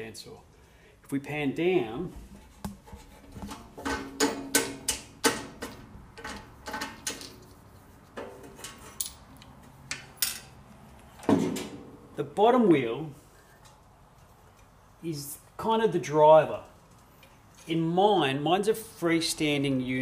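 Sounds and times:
metal latch clicks and knocks: 0:03.4 - 0:07.4.

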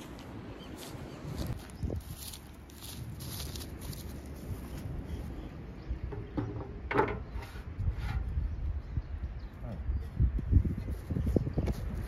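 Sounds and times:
footsteps on dry grass: 0:00.0 - 0:05.7.

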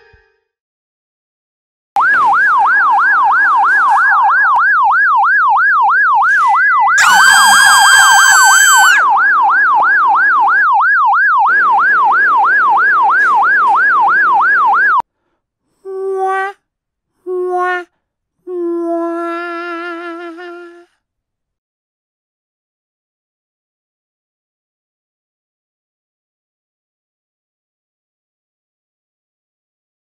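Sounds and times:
alarm siren wailing: 0:02.0 - 0:09.4.

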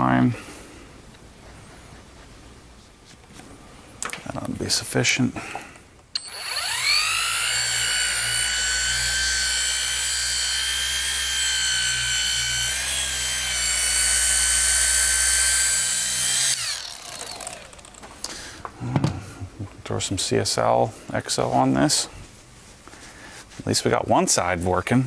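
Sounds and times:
cordless polisher motor whining: 0:06.2 - 0:18.3.

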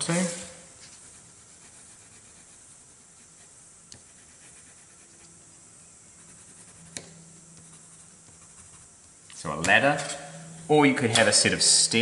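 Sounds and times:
steady low hiss: 0:00.0 - 0:12.0
pencil on paper: 0:00.1 - 0:05.4, 0:06.2 - 0:09.0.

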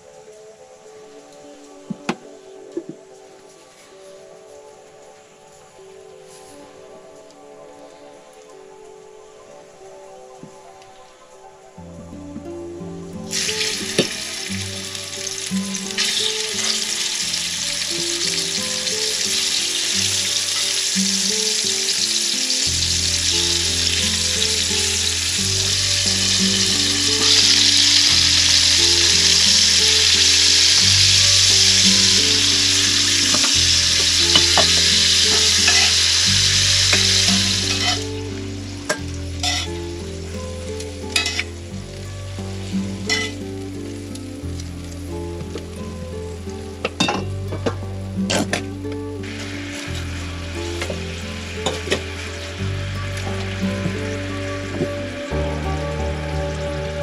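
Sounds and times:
meat sizzling in a skillet: 0:13.3 - 0:40.1, 0:40.8 - 0:41.6, 0:42.5 - 0:44.7, 0:49.2 - 0:57.0.

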